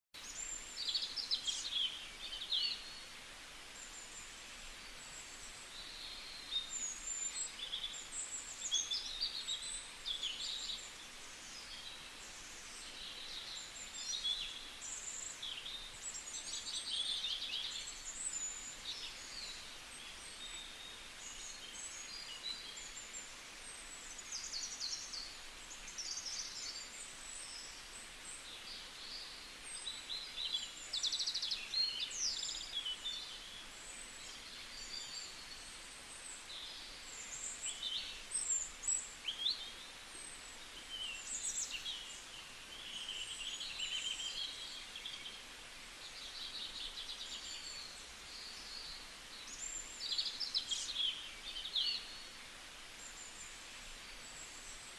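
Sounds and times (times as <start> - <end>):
faint steady hiss: 0.2 - 54.9
small birds chirping: 0.2 - 54.9.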